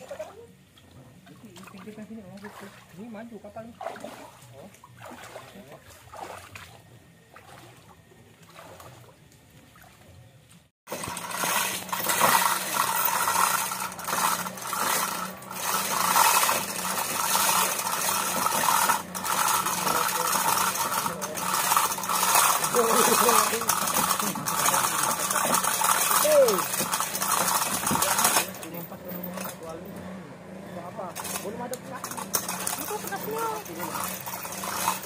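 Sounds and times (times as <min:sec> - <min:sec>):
chain rattling and clinking: 0:10.9 - 0:29.7, 0:31.2 - 0:35.0.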